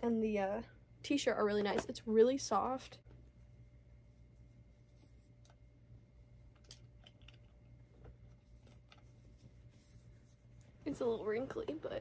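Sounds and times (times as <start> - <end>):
faint room hum: 0.0 - 12.0
t-shirt rustling: 8.2 - 11.4.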